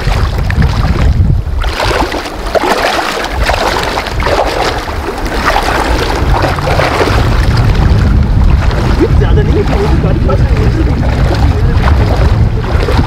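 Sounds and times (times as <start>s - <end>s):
feet splashing through water: 0.0s - 13.0s
rushing river water: 0.0s - 13.0s
wind rumble on microphone: 0.0s - 13.0s.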